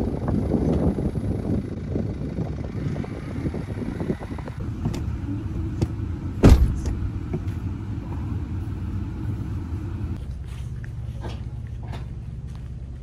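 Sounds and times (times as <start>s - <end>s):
vehicle engine rumbling: 0.0s - 13.0s
loud thump: 6.4s - 7.1s.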